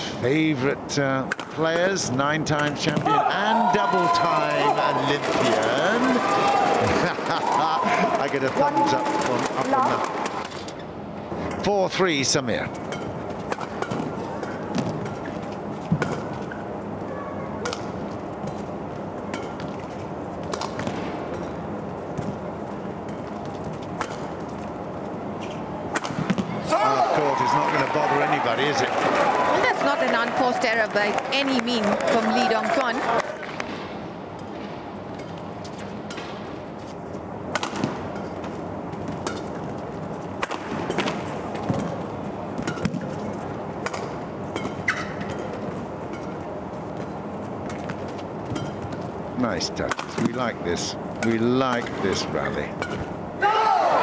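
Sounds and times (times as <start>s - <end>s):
indoor arena background noise: 0.0s - 54.0s
court shoes squeaking: 34.4s - 49.2s
rackets striking shuttlecock: 37.5s - 39.6s, 40.3s - 42.0s, 42.6s - 43.2s, 43.8s - 49.1s.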